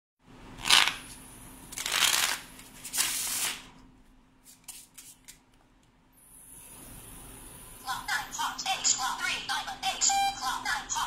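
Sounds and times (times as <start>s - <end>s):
playing cards riffle shuffling: 0.6s - 3.7s, 4.4s - 5.4s.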